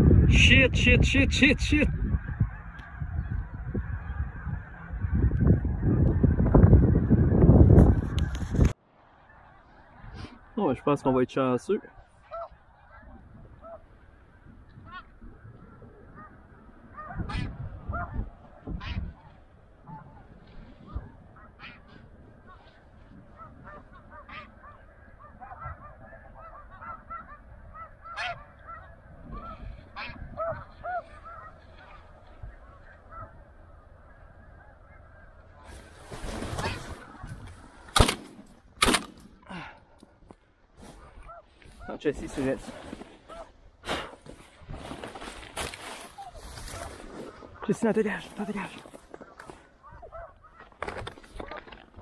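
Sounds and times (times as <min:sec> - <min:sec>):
geese honking: 0:00.0 - 0:38.1, 0:40.9 - 0:43.6, 0:45.6 - 0:51.8
rustling noise: 0:07.6 - 0:08.8, 0:35.6 - 0:37.9, 0:40.8 - 0:52.0.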